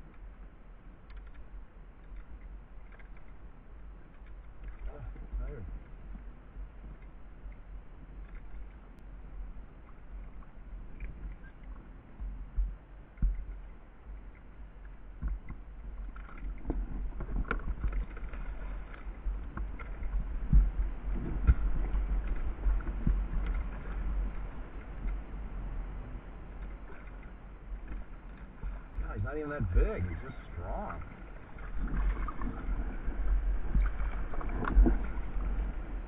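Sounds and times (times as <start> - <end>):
steady low rumble: 0.0 - 36.0.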